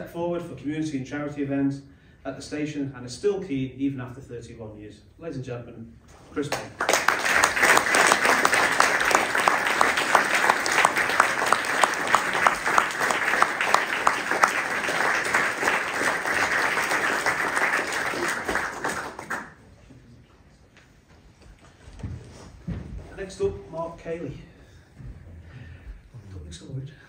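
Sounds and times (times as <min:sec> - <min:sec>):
audience applauding: 0:06.5 - 0:19.6
nearby person clapping: 0:06.5 - 0:19.6.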